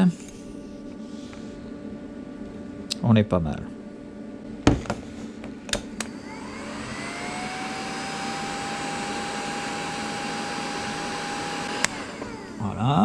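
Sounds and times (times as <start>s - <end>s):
heat gun fan whining: 4.6s - 13.0s
heat gun switch click: 5.7s - 6.2s, 11.7s - 12.4s.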